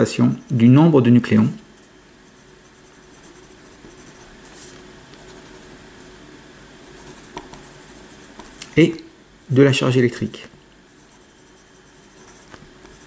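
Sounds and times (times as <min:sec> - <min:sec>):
pen scratching on paper: 0:01.8 - 0:06.1, 0:06.8 - 0:08.6, 0:10.9 - 0:13.0.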